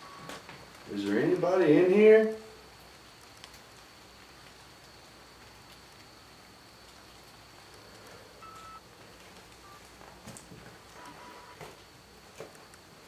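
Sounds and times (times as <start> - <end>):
faint short beeps: 8.4 - 8.8, 11.0 - 11.6.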